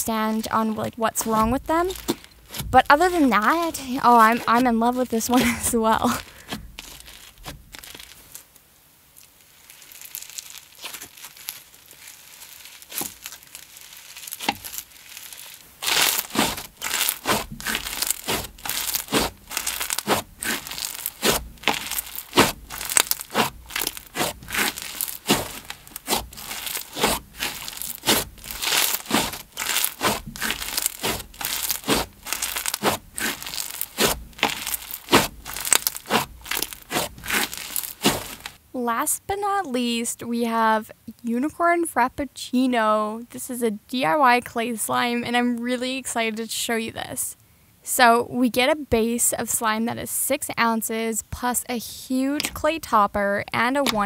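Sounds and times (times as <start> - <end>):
slime squished by hand: 1.2 - 8.4, 9.2 - 38.6.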